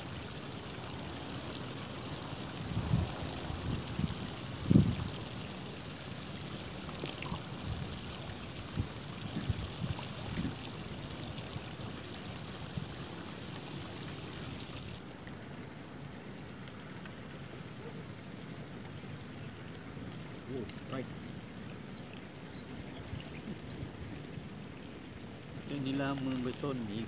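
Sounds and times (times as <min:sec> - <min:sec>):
wind buffeting microphone: 0:02.6 - 0:05.4, 0:07.2 - 0:13.0.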